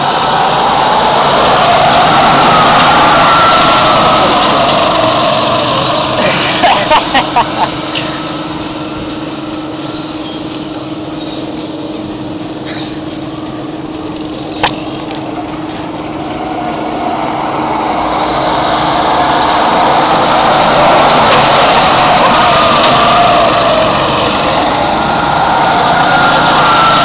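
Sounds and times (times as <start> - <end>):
go-kart engines passing: 0.0 - 27.0
sharp click: 14.2 - 15.2.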